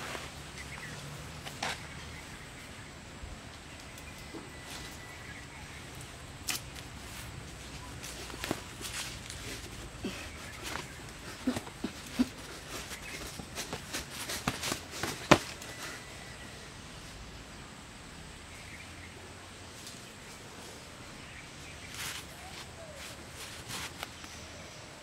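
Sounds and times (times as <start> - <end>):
quiet outdoor background: 0.0 - 25.0
bare footsteps on leafy ground: 6.5 - 16.1.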